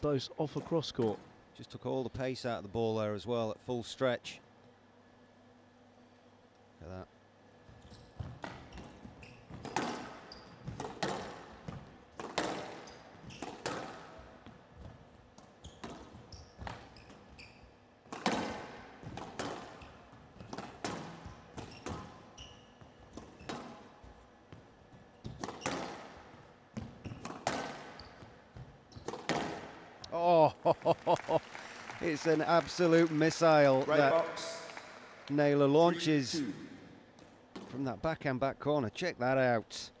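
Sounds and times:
squash ball hits echoing: 9.5 - 14.4, 18.1 - 22.2, 25.2 - 26.2, 26.8 - 28.0, 29.0 - 30.0.

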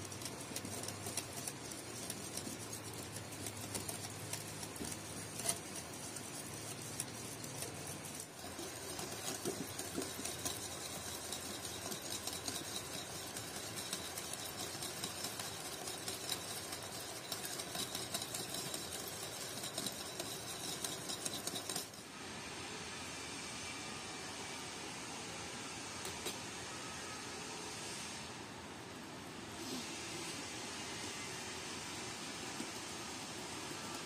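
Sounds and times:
steady hiss: 22.0 - 34.0.

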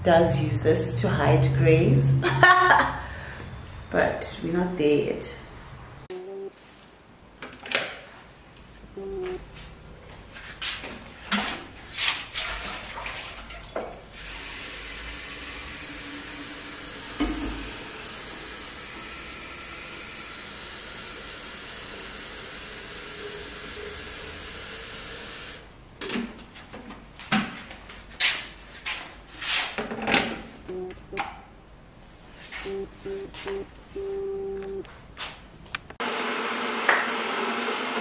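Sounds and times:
tap water filling kettle: 13.7 - 25.6.

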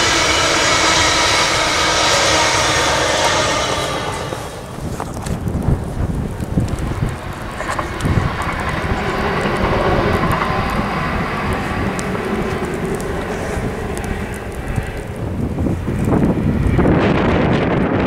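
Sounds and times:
electric train passing: 0.0 - 18.0
wind buffeting microphone: 0.0 - 18.0.

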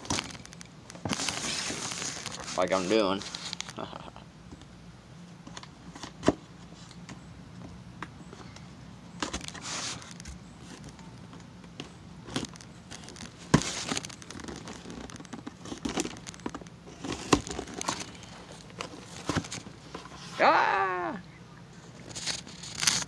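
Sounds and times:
cardboard box being torn open: 22.2 - 23.0.

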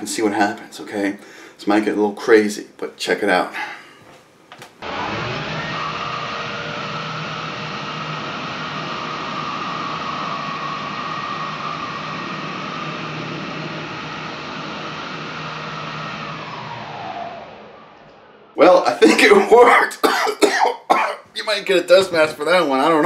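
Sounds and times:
leaf blower running: 4.8 - 17.4.

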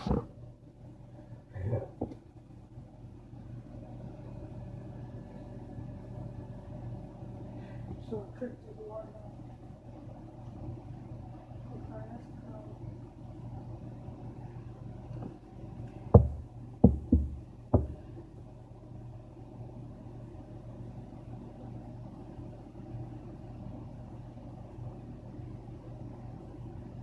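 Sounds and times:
steady low hum: 0.0 - 27.0
dull bass thumps: 16.2 - 18.1.

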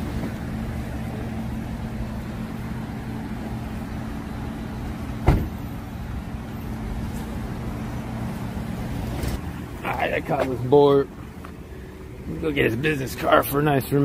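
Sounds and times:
low engine hum: 0.0 - 14.0
car door slamming: 5.1 - 5.7.

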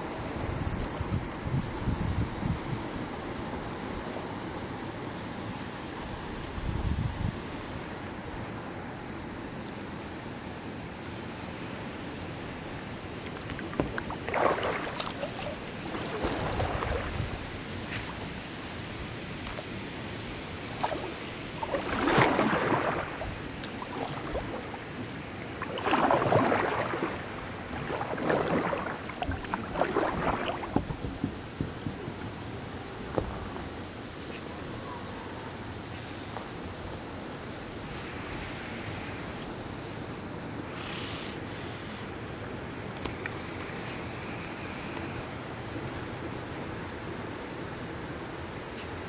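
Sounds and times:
kayak paddle splashing: 13.2 - 33.6
background hiss: 31.4 - 49.0.

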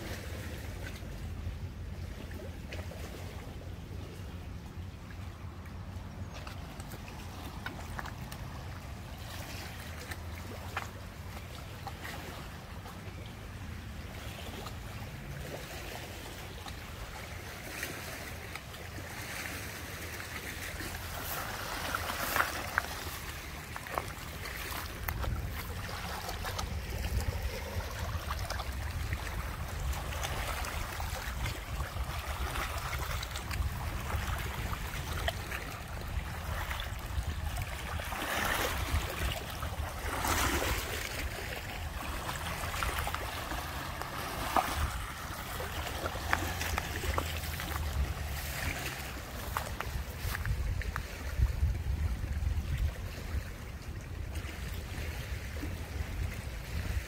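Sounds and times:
moving water: 0.0 - 57.0
wind rumble on microphone: 20.7 - 57.0.

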